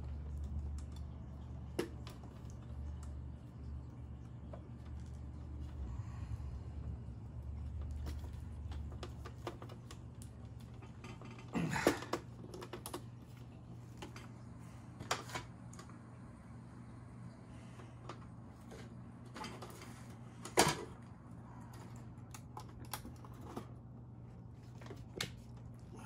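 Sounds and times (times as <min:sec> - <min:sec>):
low hum: 0:00.0 - 0:11.9.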